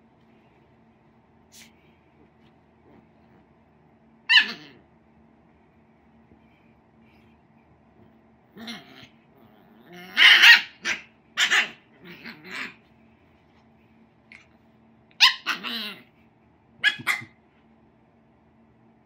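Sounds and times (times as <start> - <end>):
puppy yapping: 4.3 - 4.8, 9.9 - 12.8, 15.2 - 16.1, 16.8 - 17.4.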